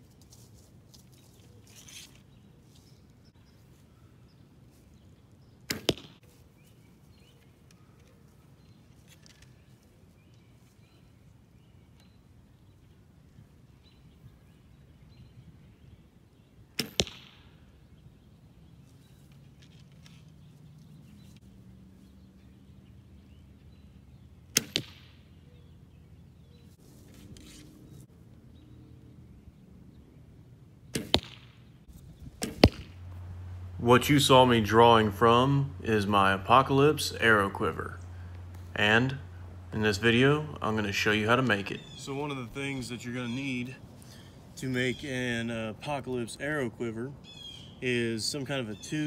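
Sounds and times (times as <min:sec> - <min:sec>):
bow string snapping: 0:24.5 - 0:25.2, 0:32.4 - 0:33.1.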